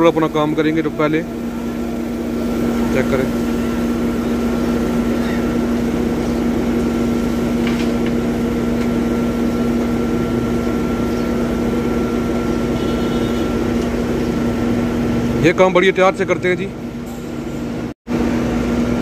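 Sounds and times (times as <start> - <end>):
diesel engines running steadily: 0.0 - 19.0
faint high whine: 10.0 - 13.6.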